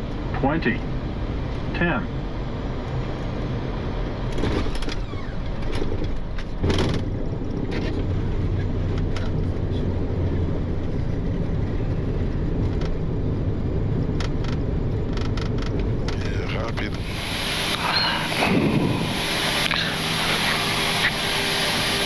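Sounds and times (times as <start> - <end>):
jet engine and airflow rush: 0.0 - 22.0
low drone: 6.9 - 22.0.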